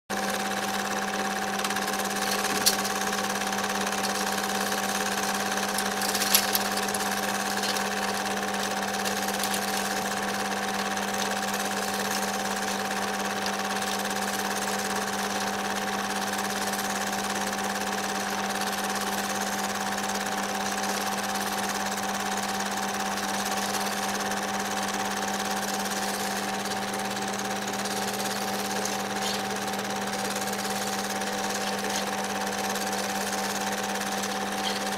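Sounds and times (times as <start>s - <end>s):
film projector whirring: 0.1s - 34.9s.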